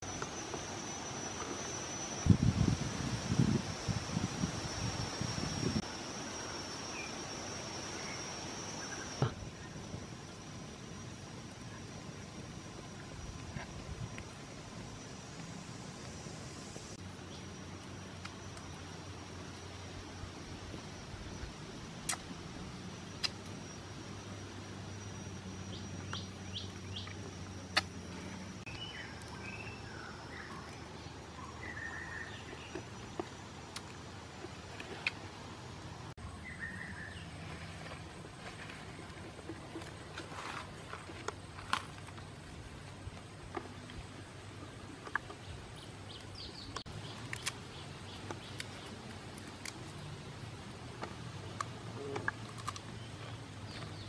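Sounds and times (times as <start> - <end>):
forest background: 0.0 - 54.0
steady low hum: 0.0 - 54.0
birds chirping and warbling: 25.5 - 33.5, 36.2 - 37.6, 45.2 - 49.0
beetle shell clicking and crackling: 45.0 - 54.0.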